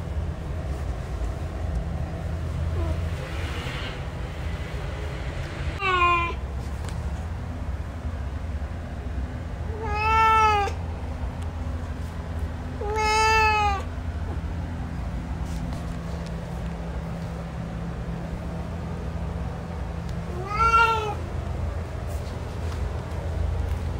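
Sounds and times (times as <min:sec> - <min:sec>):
cat meowing: 0:05.8 - 0:06.4, 0:09.7 - 0:10.8, 0:12.8 - 0:13.9, 0:20.3 - 0:21.3.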